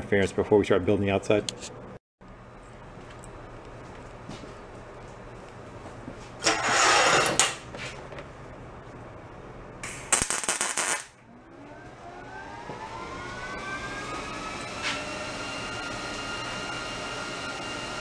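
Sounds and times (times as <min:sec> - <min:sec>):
welder crackling buzz: 0:09.8 - 0:11.2
faint rising whine: 0:11.2 - 0:18.0.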